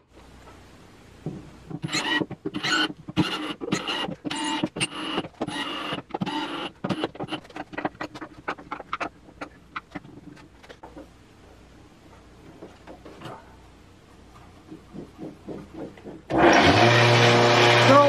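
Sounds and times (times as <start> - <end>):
cordless drill bursts: 1.9 - 7.0, 16.3 - 18.0.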